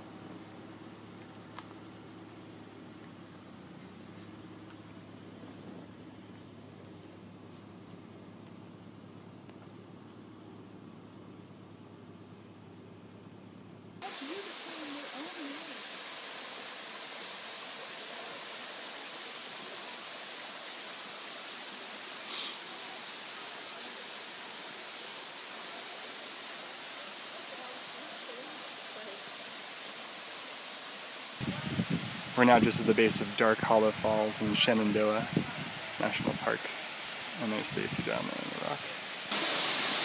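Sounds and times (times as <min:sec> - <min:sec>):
waterfall and creek rushing: 0:14.0 - 0:40.0.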